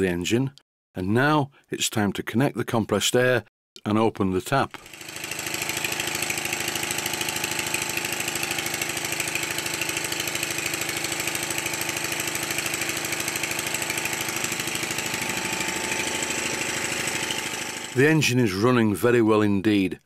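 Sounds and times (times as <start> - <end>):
model steam engine running on air: 4.8 - 18.0.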